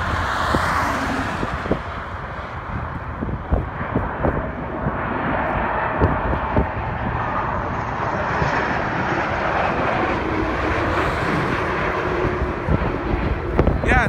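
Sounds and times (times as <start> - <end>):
jet plane passing overhead: 0.0 - 14.0.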